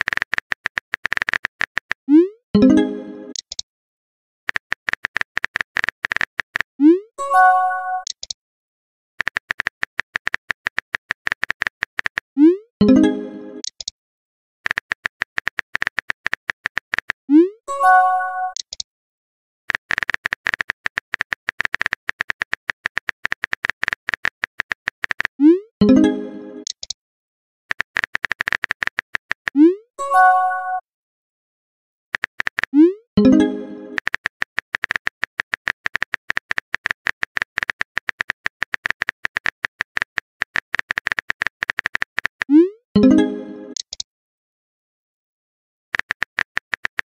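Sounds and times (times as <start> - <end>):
keyboard typing clicks: 2.6 - 3.6, 4.5 - 6.7, 7.9 - 8.4, 9.2 - 12.2, 12.8 - 13.9, 14.6 - 17.2, 18.4 - 18.8, 19.7 - 27.0, 27.7 - 29.6, 32.2 - 44.0, 46.0 - 47.0.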